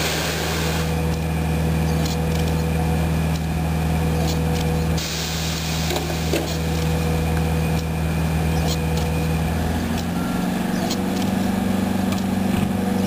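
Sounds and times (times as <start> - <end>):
hissing bursts: 0.0 - 1.0, 5.0 - 6.8
faint steady whine: 0.0 - 13.0
low hum of trolleybus: 0.0 - 13.0.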